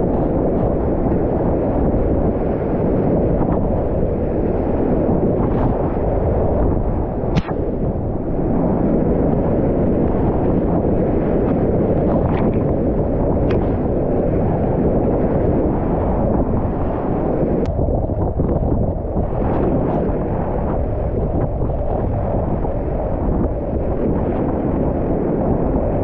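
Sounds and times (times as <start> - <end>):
sharp clicks: 7.4 - 7.6.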